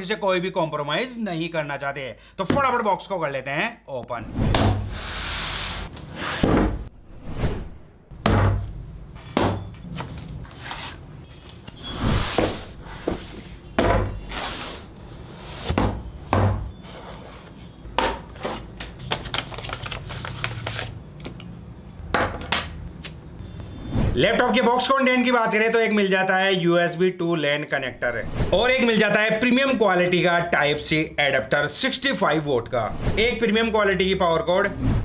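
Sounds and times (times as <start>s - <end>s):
cardboard scraping and rustling: 9.9s - 13.6s.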